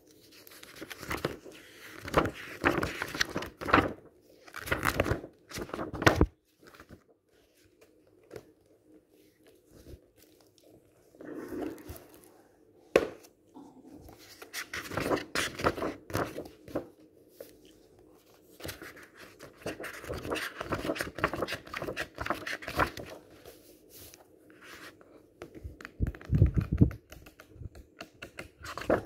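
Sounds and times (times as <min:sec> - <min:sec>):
book pages flipping: 0:00.0 - 0:12.4, 0:14.0 - 0:29.0.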